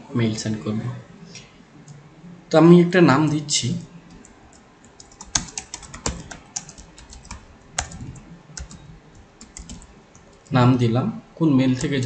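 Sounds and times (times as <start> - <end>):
computer keyboard typing: 4.0 - 10.6, 11.7 - 12.0.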